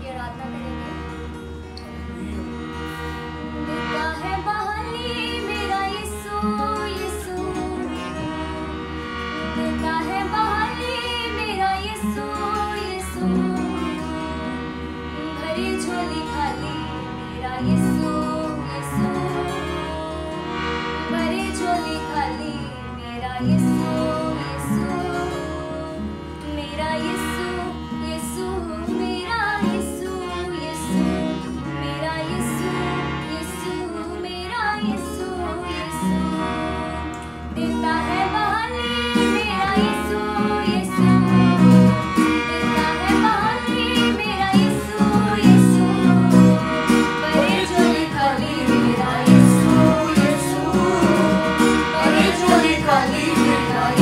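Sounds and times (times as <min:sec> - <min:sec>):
harmonium chords: 0:00.0 - 0:54.0
strummed acoustic guitar: 0:00.0 - 0:54.0
girl singing worship song: 0:03.7 - 0:08.7, 0:33.3 - 0:54.0.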